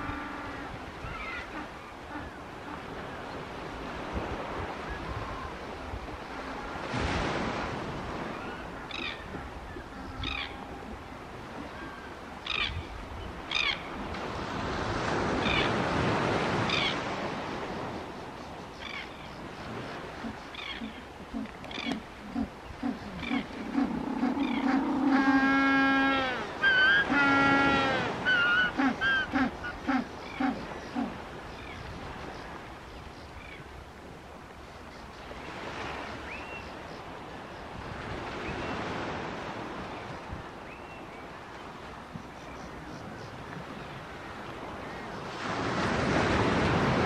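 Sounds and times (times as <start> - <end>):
surf washing on beach: 0.0 - 18.8, 33.6 - 47.0.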